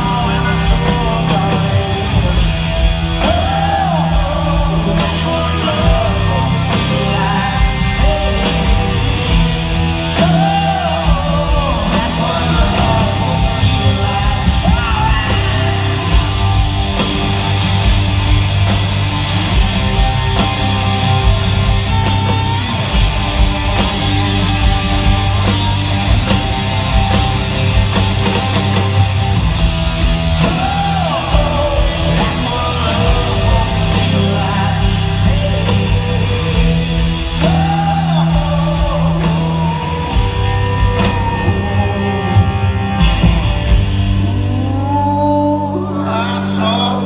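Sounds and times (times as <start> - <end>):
distorted electric guitar: 0.0 - 47.0
rock band playing live: 0.0 - 47.0.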